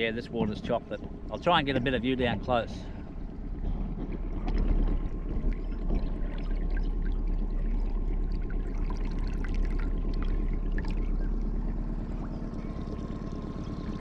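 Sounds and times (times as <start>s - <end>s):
low rumble: 0.0s - 14.0s
water lapping and splashing: 0.0s - 14.0s
water trickling and dripping: 4.4s - 14.0s.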